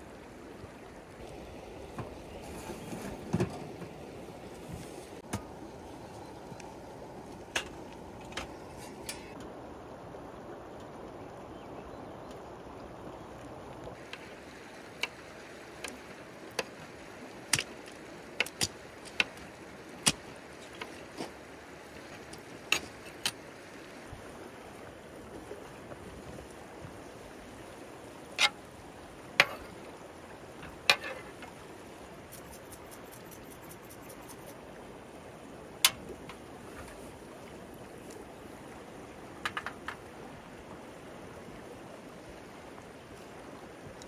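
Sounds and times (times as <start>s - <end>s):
river rushing: 12.4s - 44.0s.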